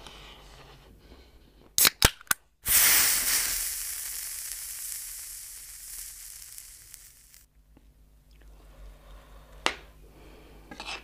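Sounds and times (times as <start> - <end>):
burst of hiss: 2.6 - 7.5.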